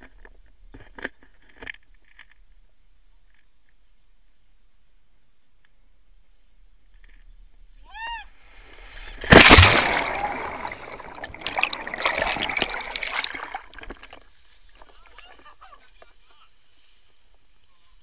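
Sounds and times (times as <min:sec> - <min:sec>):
underwater rushing and bubbling: 0:08.8 - 0:14.2
loud splash into water: 0:09.0 - 0:14.2
water sloshing and splashing: 0:09.1 - 0:15.2.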